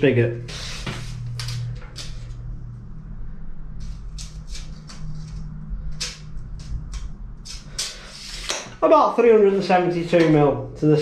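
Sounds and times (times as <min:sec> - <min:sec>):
low hum: 0:00.0 - 0:11.0
tape measure clicks and scrapes: 0:00.5 - 0:02.4, 0:03.8 - 0:08.8.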